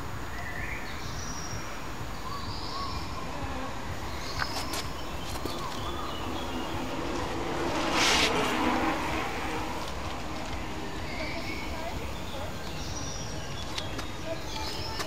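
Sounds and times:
bird chirps: 0:00.3 - 0:07.4, 0:10.0 - 0:15.0
low hum: 0:01.9 - 0:13.5.

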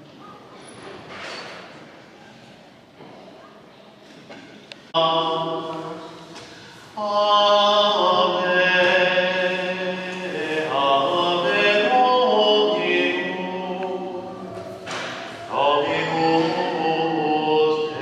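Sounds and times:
voice singing church chant: 0:04.8 - 0:18.0.

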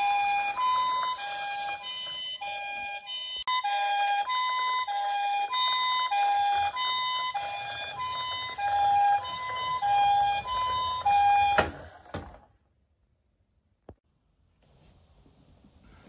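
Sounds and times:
toy siren two-tone: 0:00.0 - 0:12.0
plastic wheels rolling on wood: 0:06.1 - 0:12.5.

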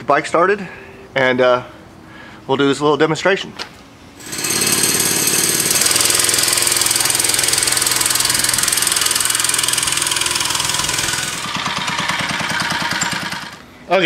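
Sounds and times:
small engine at full throttle: 0:04.2 - 0:13.6.

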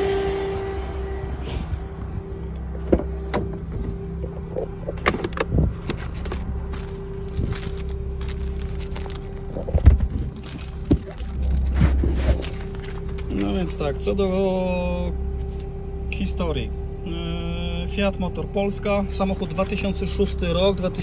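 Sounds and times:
car engine hum: 0:00.0 - 0:21.0
car door opening: 0:02.6 - 0:06.3.

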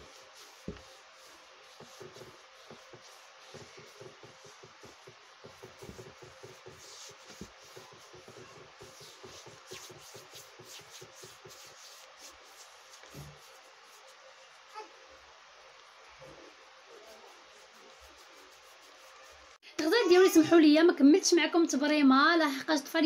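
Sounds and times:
palm rubbing skin: 0:00.0 - 0:14.7, 0:17.0 - 0:19.6.

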